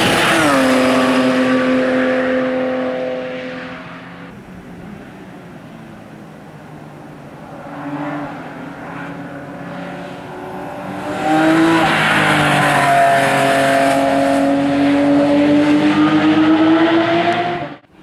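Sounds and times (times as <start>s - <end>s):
race car engine accelerating: 0.0s - 17.9s.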